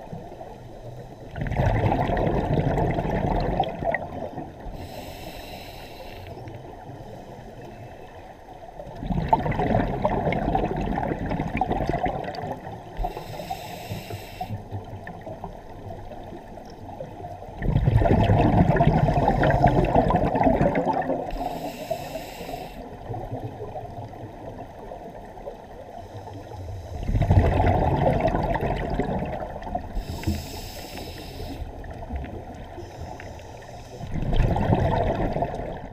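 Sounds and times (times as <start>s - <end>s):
exhaled bubbles rushing: 1.3s - 4.6s, 9.0s - 12.8s, 17.6s - 21.4s, 27.0s - 30.1s, 34.0s - 35.9s
regulator breath hiss: 4.7s - 6.4s, 13.0s - 14.6s, 21.3s - 22.9s, 30.0s - 31.8s, 32.8s - 34.2s.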